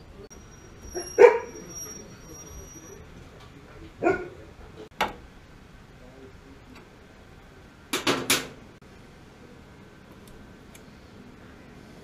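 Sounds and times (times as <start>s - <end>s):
dog barking: 0.9s - 1.7s, 4.0s - 4.4s.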